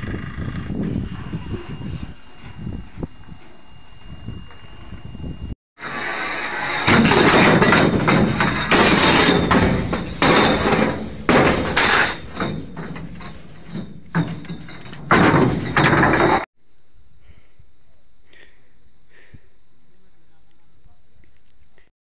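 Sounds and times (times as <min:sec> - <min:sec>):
steel pipes clattering and scraping: 0:00.4 - 0:05.0, 0:05.8 - 0:16.5.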